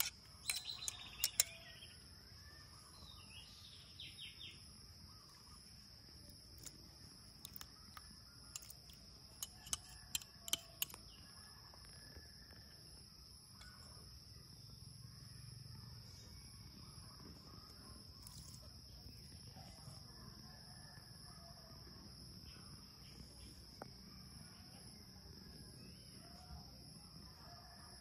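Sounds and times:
bird chirps: 0:00.0 - 0:05.7
sharp clicks: 0:07.4 - 0:11.0.

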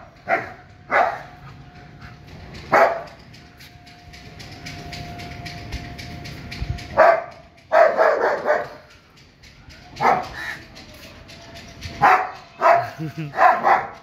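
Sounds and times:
dog barking: 0:00.2 - 0:01.3, 0:02.7 - 0:03.1, 0:07.0 - 0:08.8, 0:10.0 - 0:10.4, 0:12.0 - 0:14.0.

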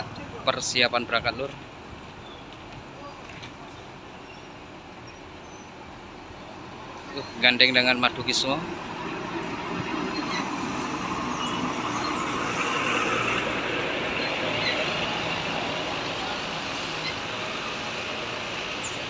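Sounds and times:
traffic hiss: 0:00.0 - 0:19.0
bus pulling away: 0:08.8 - 0:19.0.

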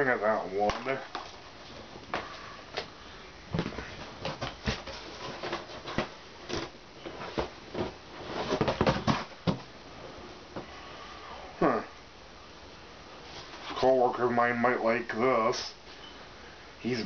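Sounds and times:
plastic cases clacking together: 0:03.5 - 0:09.7.

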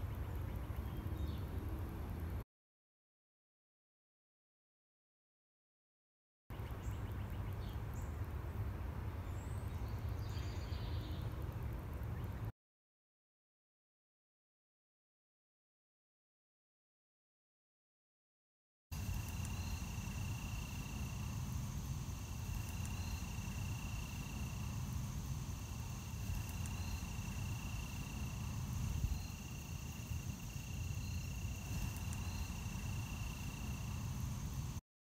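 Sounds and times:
faint insect chirps: 0:09.2 - 0:12.4, 0:19.0 - 0:34.8
constant low rumble: 0:19.0 - 0:34.8
crickets trilling: 0:19.0 - 0:34.8.

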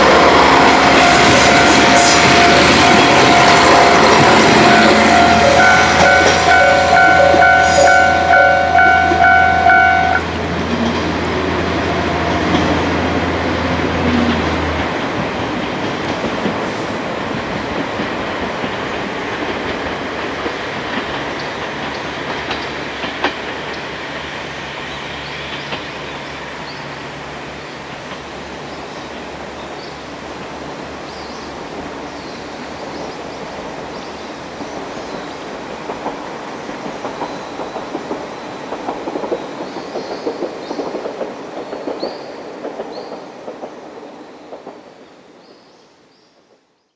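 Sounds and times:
diesel railcar pulling away: 0:00.0 - 0:43.2
rail clicks: 0:00.0 - 0:45.3
warning bell dinging rapidly: 0:00.9 - 0:10.2.

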